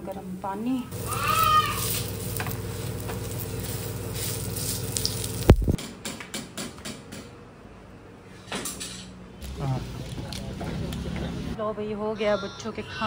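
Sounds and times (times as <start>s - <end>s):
steady hum: 0.0s - 5.8s
food sizzling on a griddle: 0.9s - 5.8s.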